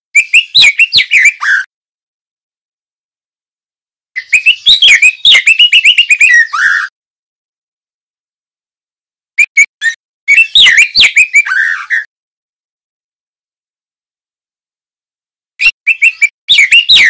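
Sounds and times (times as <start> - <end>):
bird singing whistled notes: 0.2 - 1.7, 4.2 - 6.9, 9.4 - 12.1, 15.6 - 17.0.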